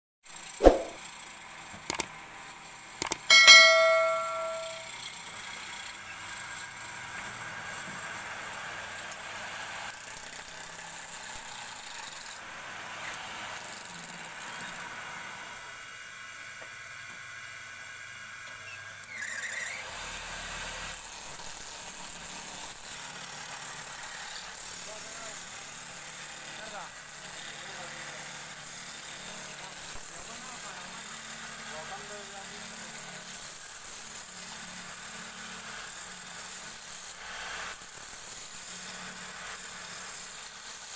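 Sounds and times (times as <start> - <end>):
faint thin high tones: 0.6 - 1.0, 3.3 - 4.9.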